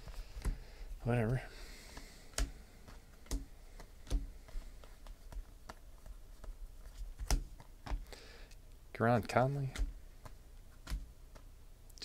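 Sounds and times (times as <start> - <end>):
trading cards flipped by hand: 1.2 - 8.1, 9.8 - 11.5.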